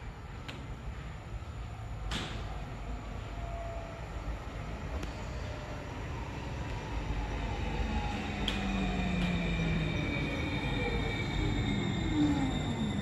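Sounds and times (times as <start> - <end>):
train motor whine: 6.7 - 13.0.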